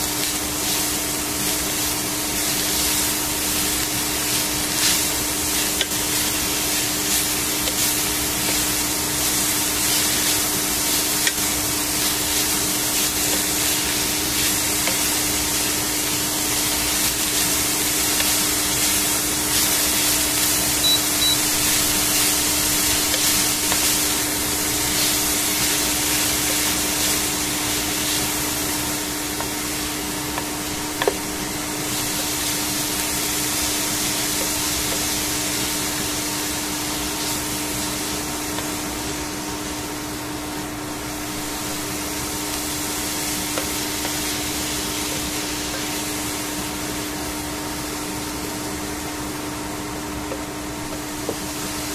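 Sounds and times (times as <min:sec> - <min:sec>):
vegetables sizzling in a pan: 0:00.0 - 0:51.9.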